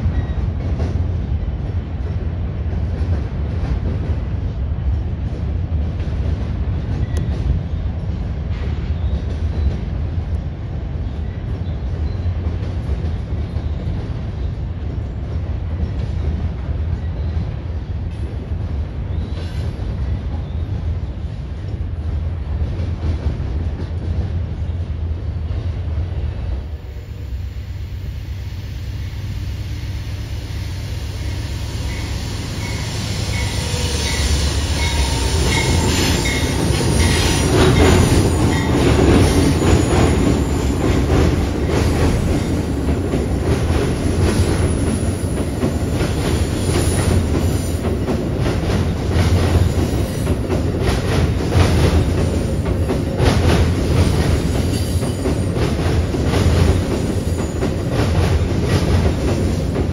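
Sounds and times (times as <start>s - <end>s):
train low rumble: 0.0s - 59.9s
train wheels clattering over rail joints: 31.9s - 59.9s.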